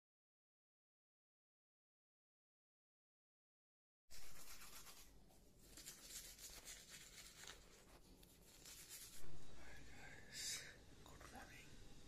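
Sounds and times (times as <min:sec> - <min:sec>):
toothbrush scrubbing teeth: 0:04.1 - 0:09.3.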